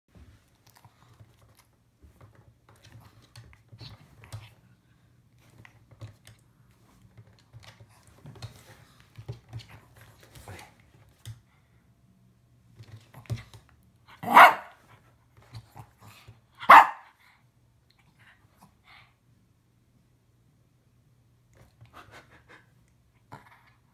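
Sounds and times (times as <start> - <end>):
soft clicks and scuffles: 5.4 - 11.4
small dog barking: 14.2 - 14.8, 16.6 - 17.2.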